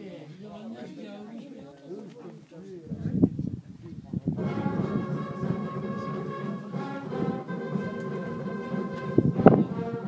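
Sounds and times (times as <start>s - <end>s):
brass band music: 4.4s - 10.0s.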